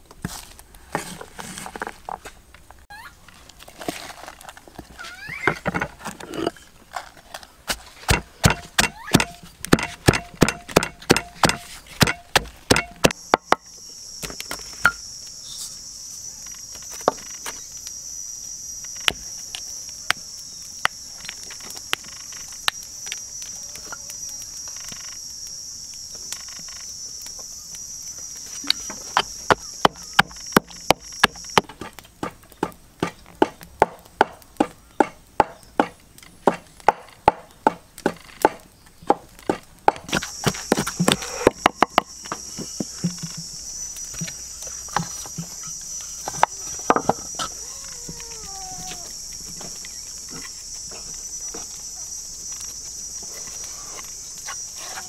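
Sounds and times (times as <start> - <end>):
pestle pounding in wooden mortar: 7.7 - 13.6, 29.2 - 43.5
high insect buzzing: 13.0 - 20.1, 20.9 - 31.6, 40.1 - 55.0.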